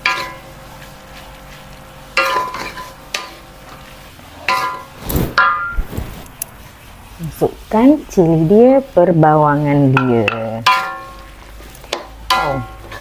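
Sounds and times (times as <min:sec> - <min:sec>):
faint frying sizzle: 0:00.0 - 0:05.0, 0:06.4 - 0:13.0
wooden spatula scraping a wok: 0:03.7 - 0:08.9, 0:12.7 - 0:13.0.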